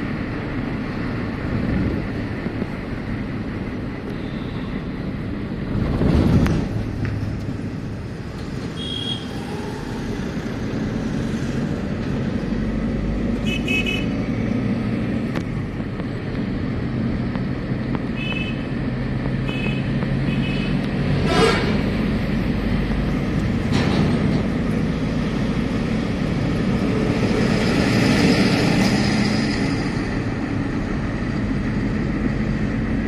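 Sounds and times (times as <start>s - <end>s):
engine and tyre rumble: 0.0s - 33.0s
car horn beeps: 8.7s - 9.3s, 13.4s - 14.1s, 18.1s - 18.7s, 19.4s - 21.5s.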